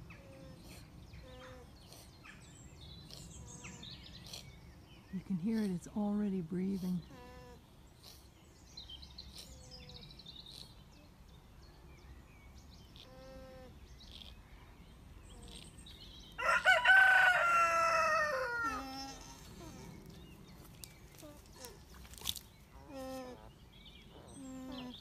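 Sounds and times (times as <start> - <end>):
rooster crowing: 16.4 - 19.1.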